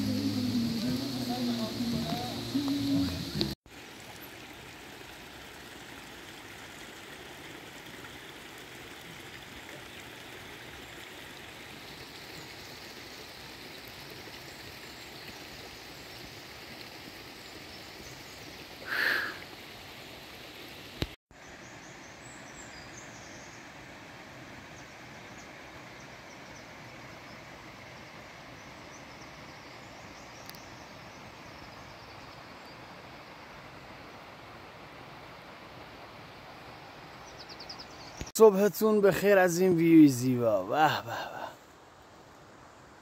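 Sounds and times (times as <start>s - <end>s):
flowing water rushing: 0.0s - 21.7s, 23.3s - 43.0s.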